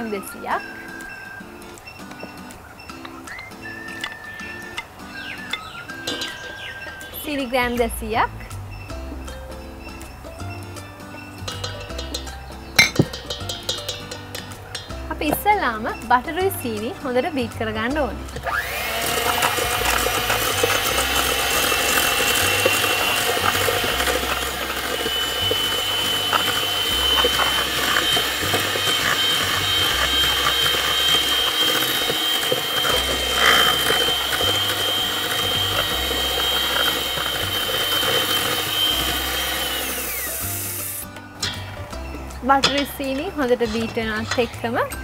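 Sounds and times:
background music: 0.0 - 45.0
electric hand mixer whining: 18.4 - 41.1.

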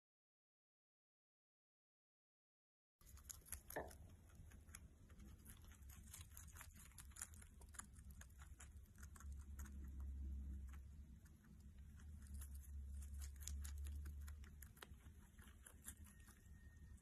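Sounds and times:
low hum: 3.0 - 17.0
rabbit chewing leaf: 3.0 - 17.0.

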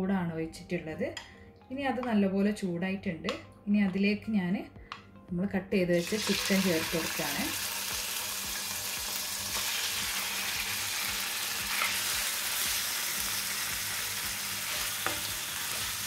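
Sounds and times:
chicken sizzling in a frying pan: 6.0 - 16.0.

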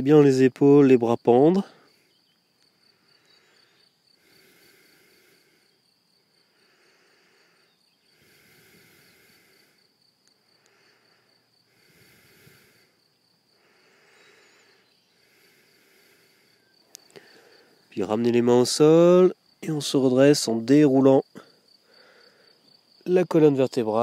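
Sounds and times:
crickets trilling: 0.0 - 24.0.

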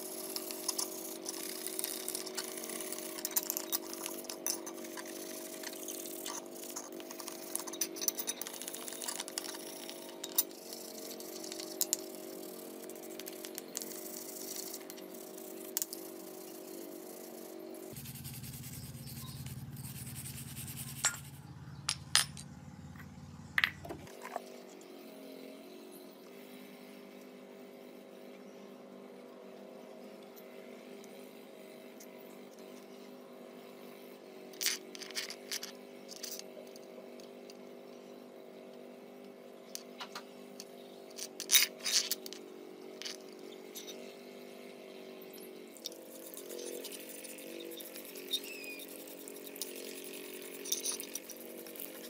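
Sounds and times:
steady background hum: 0.0 - 52.0
scraping metal chainring: 0.3 - 12.3, 34.6 - 36.4, 41.1 - 42.4, 45.8 - 52.0.

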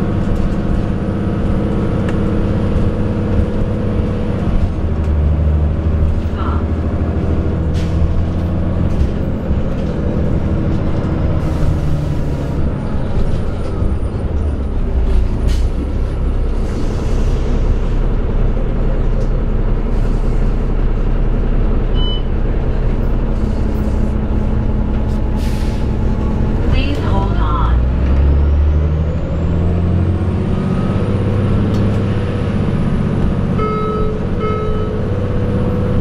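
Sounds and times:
bus diesel engine drone: 0.0 - 36.0.

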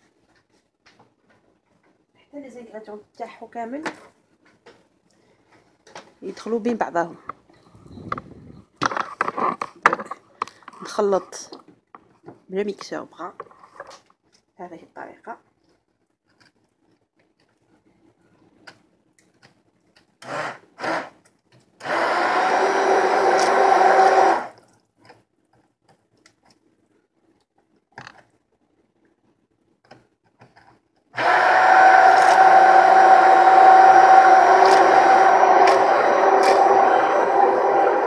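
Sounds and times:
stick blender motor whine: 20.2 - 21.2, 21.8 - 24.6, 31.2 - 38.0.

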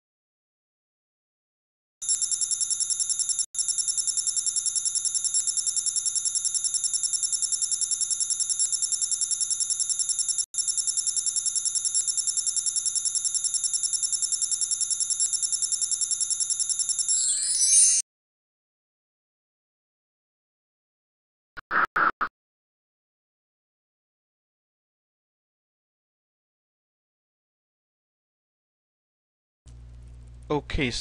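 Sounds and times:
electronic ringing trill: 2.0 - 18.0.

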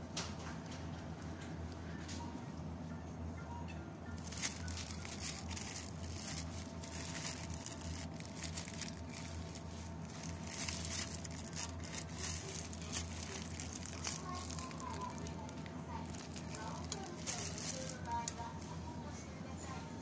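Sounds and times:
low shop hum: 0.0 - 20.0
rustling and crinkling handling: 4.2 - 19.0.

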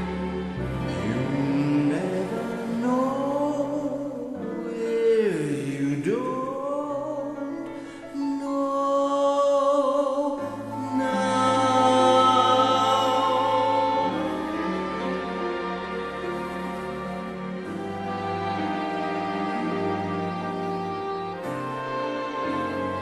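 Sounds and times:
slow music: 0.0 - 23.0
person singing long notes: 0.8 - 15.5.

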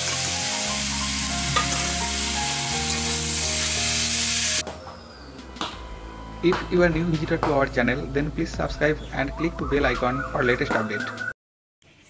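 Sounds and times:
vegetables sizzling in a wok: 0.0 - 4.6.

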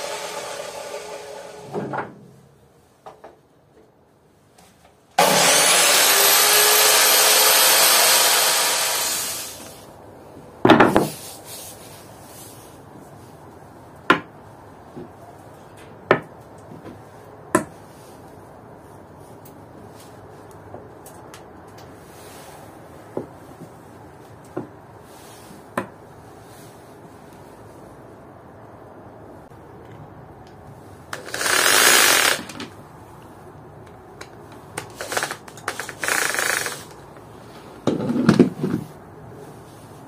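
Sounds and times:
power tool motor whining: 0.0 - 1.6, 5.2 - 9.7, 31.2 - 32.6.

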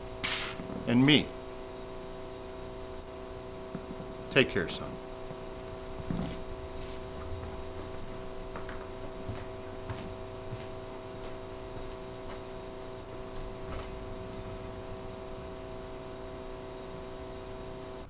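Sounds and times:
electrical mains hum: 0.0 - 18.0.

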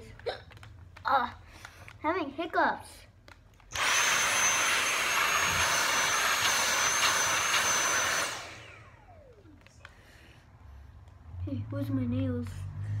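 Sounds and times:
handheld vacuum whining: 3.7 - 10.0
vacuum airflow rush: 3.8 - 11.1.

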